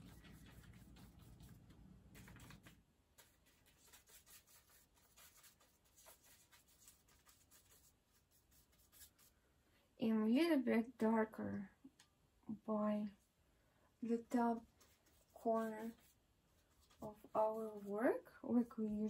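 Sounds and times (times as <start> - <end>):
paintbrush stroking on paper: 0.0 - 9.3, 14.5 - 18.3.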